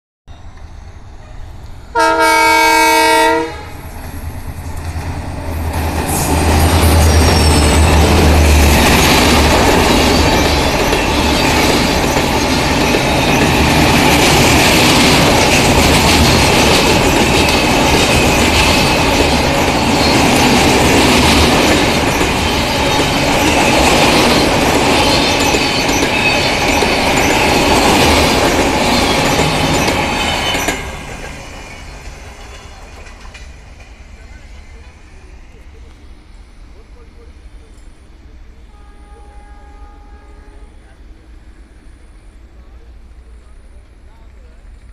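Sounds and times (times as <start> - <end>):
locomotive horn: 1.9 - 3.8, 38.7 - 40.8
train wheels clattering on bridge: 4.0 - 34.0.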